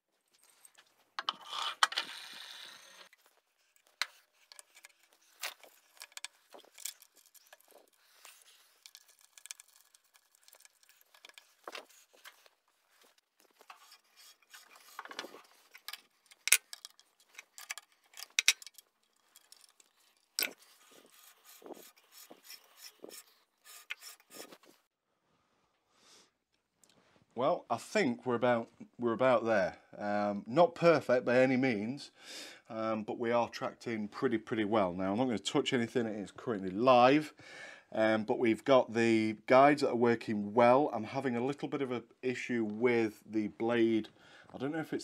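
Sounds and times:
bandsaw blade rubbing: 0:03.7 - 0:17.8, 0:19.4 - 0:24.9.

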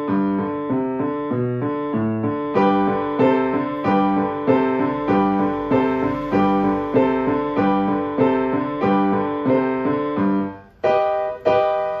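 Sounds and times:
grand piano playing: 0:00.0 - 0:12.0.

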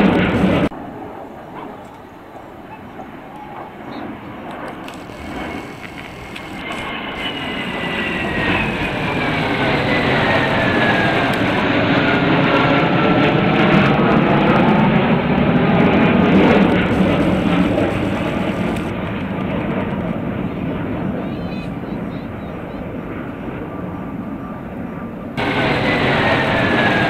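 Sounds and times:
high jet whine falling in pitch: 0:00.0 - 0:19.3, 0:25.4 - 0:27.0
fighter jets flying past: 0:00.0 - 0:27.0.

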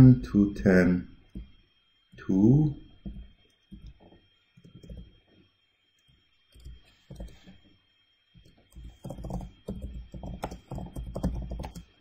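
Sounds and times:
computer keyboard keystrokes: 0:06.5 - 0:07.5, 0:08.7 - 0:11.9.

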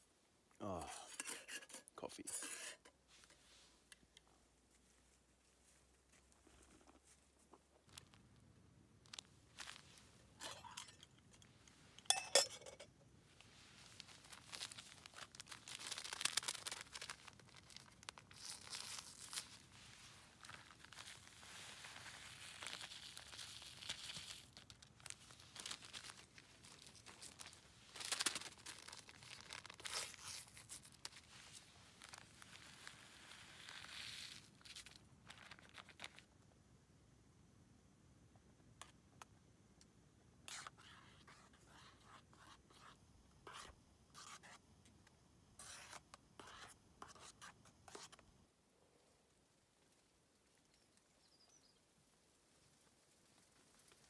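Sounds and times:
crinkly material rustling: 0:03.1 - 0:11.9, 0:13.3 - 0:36.3, 0:52.3 - 0:54.0.

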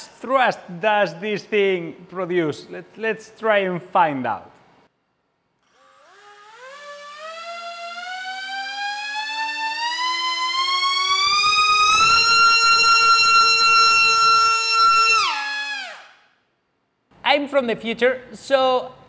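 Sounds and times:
motors and propellers whining: 0:05.7 - 0:16.1.

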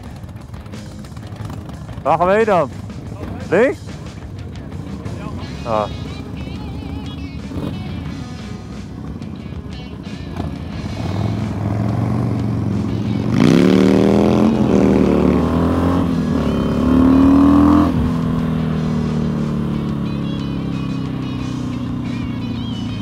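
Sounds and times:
motorcycle engine accelerating: 0:00.0 - 0:23.0.

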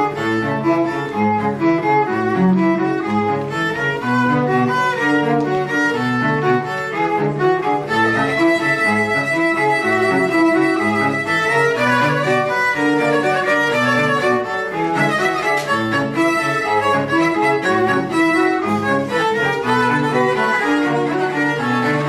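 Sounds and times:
cellos playing: 0:00.0 - 0:22.0.

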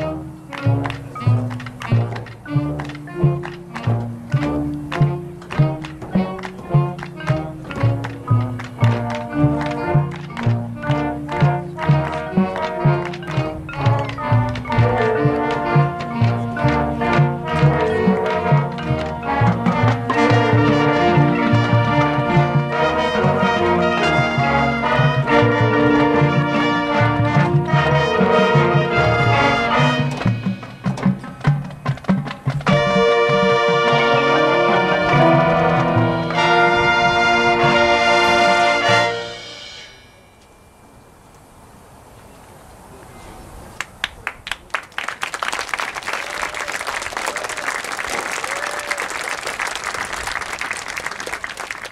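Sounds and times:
brass band playing chords: 0:00.0 - 0:40.2
crowd applause: 0:04.9 - 0:31.5, 0:43.8 - 0:51.9
sharp percussion hits: 0:10.0 - 0:40.9.

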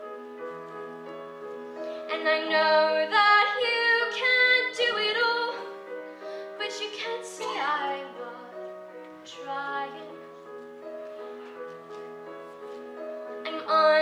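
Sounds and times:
grand piano: 0:00.0 - 0:14.0
woman singing a ballad: 0:02.1 - 0:05.6, 0:06.6 - 0:08.6, 0:09.2 - 0:10.2, 0:13.4 - 0:14.0.

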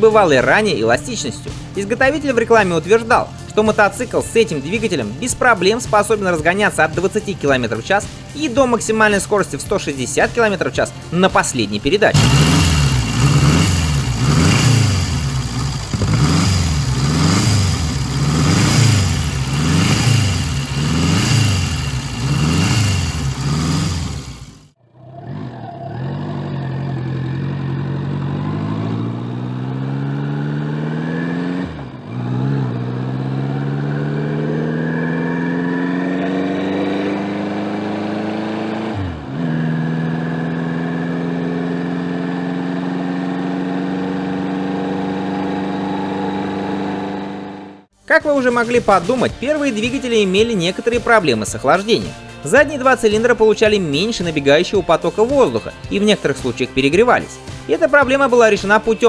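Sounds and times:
motorcycle engine revving: 0:12.0 - 0:48.0
motorcycle pulling away: 0:12.1 - 0:47.9.

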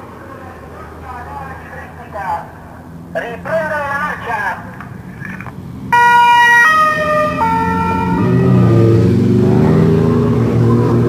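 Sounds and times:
vehicle engine passing: 0:00.0 - 0:11.0
two-tone siren: 0:05.9 - 0:10.4.

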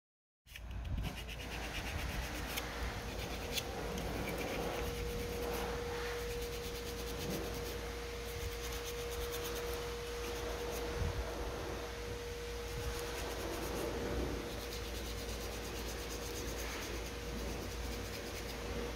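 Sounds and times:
steady hum with held tone: 0:00.5 - 0:18.9
low rumble: 0:00.8 - 0:18.9.

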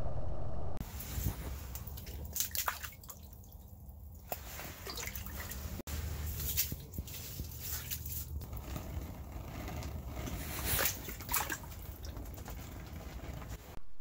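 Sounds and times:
water and slush splashing: 0:00.8 - 0:08.6, 0:09.5 - 0:13.6.

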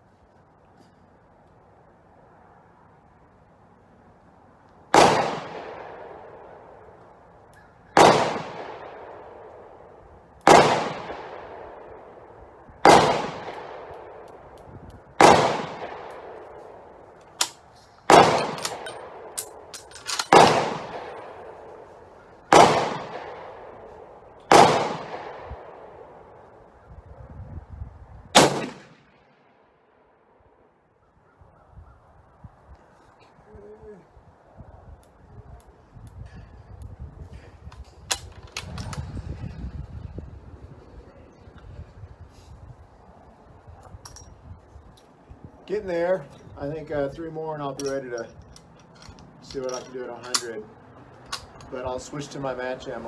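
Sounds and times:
rifle shots echoing: 0:04.9 - 0:07.0, 0:07.9 - 0:14.6, 0:15.2 - 0:21.9, 0:22.5 - 0:26.6, 0:28.3 - 0:29.6.

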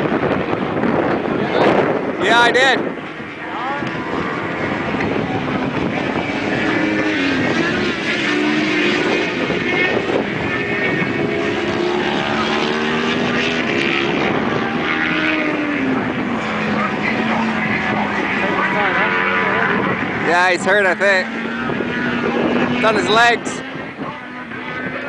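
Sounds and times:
racing motorcycle engines revving: 0:00.0 - 0:25.0.

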